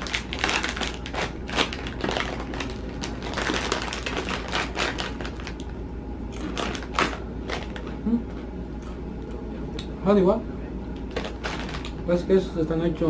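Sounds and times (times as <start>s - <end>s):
plastic snack bag crinkling: 0.0s - 5.7s, 6.4s - 8.0s, 11.0s - 12.0s.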